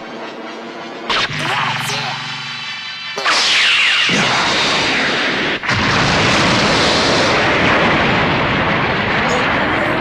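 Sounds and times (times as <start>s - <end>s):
rushing blast with falling whistles: 0.0s - 10.0s
explosion with deep rumble: 2.2s - 10.0s.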